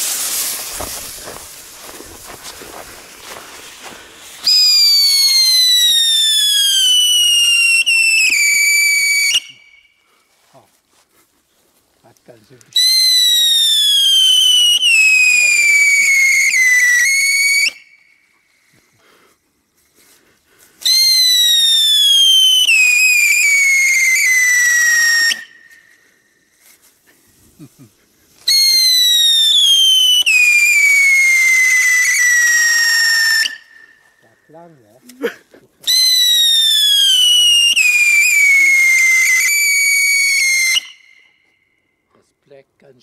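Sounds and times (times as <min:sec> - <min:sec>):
firework wheel whistling: 0:00.0 - 0:10.0, 0:12.8 - 0:18.4, 0:20.8 - 0:27.1, 0:28.4 - 0:34.2, 0:35.8 - 0:41.6.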